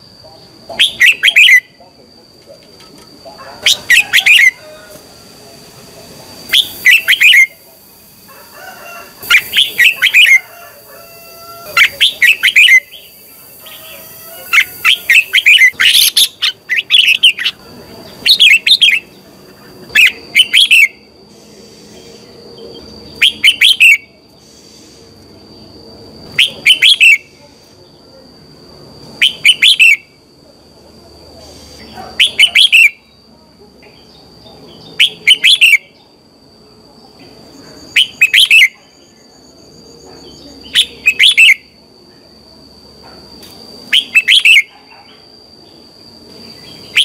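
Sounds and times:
bird warbling: 0.8s - 1.8s, 3.6s - 5.0s, 6.5s - 7.6s, 8.3s - 22.4s, 43.9s - 45.1s
thin high whine: 2.9s - 30.3s.

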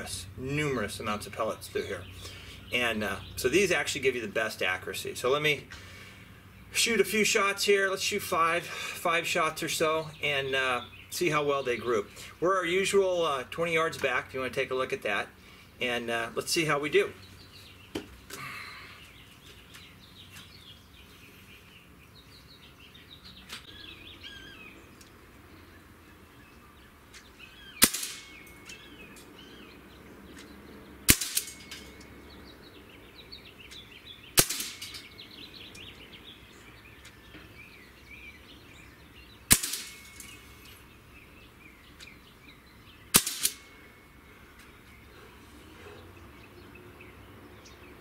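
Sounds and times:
birds chirping: 0.0s - 48.0s
air rifle shots: 27.8s - 28.5s, 31.1s - 31.9s, 34.4s - 35.1s, 39.5s - 40.4s, 43.1s - 43.8s.

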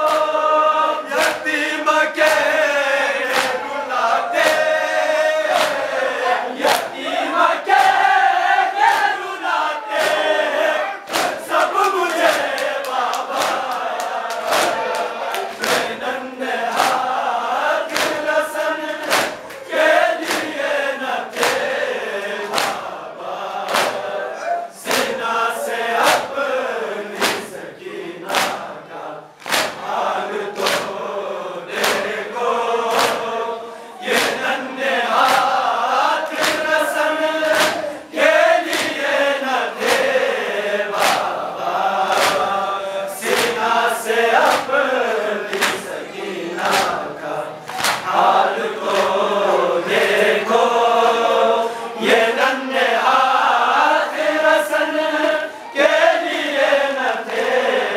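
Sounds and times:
lead reciters: 0.0s - 57.9s
men chanting in unison: 0.0s - 57.9s
palms slapping chests: 3.2s - 3.8s, 4.4s - 7.1s, 7.7s - 9.2s, 9.9s - 16.1s, 16.7s - 17.3s, 17.9s - 20.7s, 21.3s - 23.0s, 23.6s - 24.2s, 24.8s - 25.2s, 27.1s - 27.6s, 28.2s - 28.8s, 29.4s - 31.1s, 31.7s - 32.2s, 32.8s - 33.4s, 34.0s - 39.2s, 39.8s - 49.3s.

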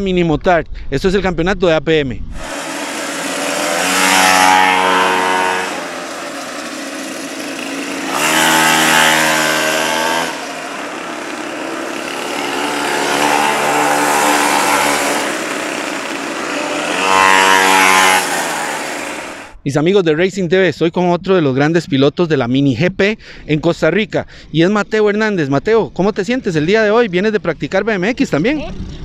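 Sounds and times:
small motorcycle engines revving: 2.3s - 19.6s.

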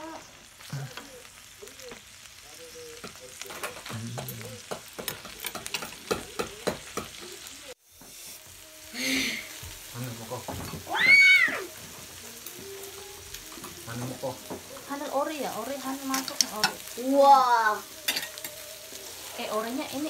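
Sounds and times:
meat sizzling on a grill pan: 0.0s - 20.0s
metal tongs clicking and scraping: 5.0s - 6.2s, 18.1s - 18.6s.

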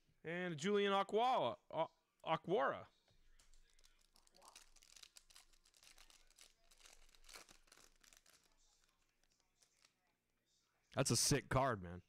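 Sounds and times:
plastic wrapper crinkling and tearing: 3.3s - 10.1s.

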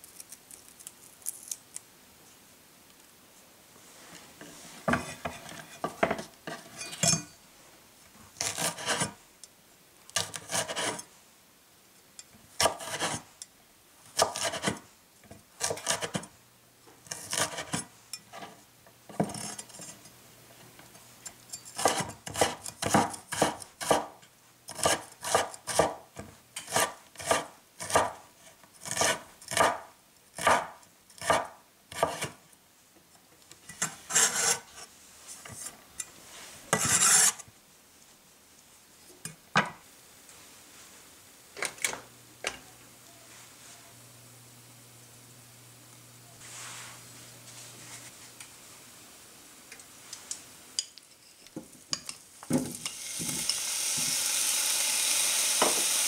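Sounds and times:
knife cutting on wooden board: 8.4s - 9.1s, 10.2s - 11.0s, 12.6s - 13.2s, 14.2s - 14.8s, 17.1s - 17.8s.

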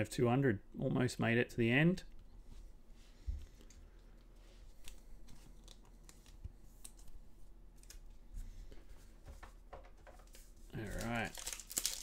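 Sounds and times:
foil card pack rustling: 10.3s - 12.0s.

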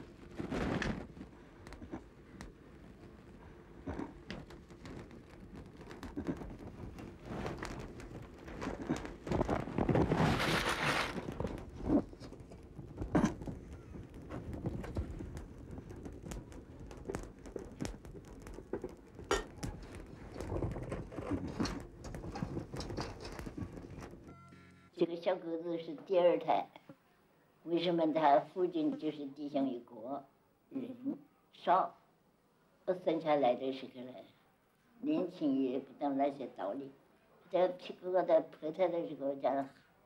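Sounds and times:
straw fire crackling and popping: 0.0s - 24.3s.

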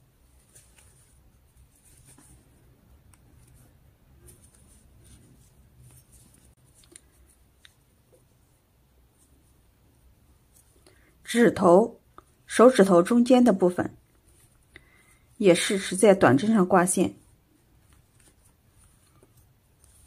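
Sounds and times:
yarn rustling through crochet hook: 0.0s - 10.9s, 15.4s - 20.0s.

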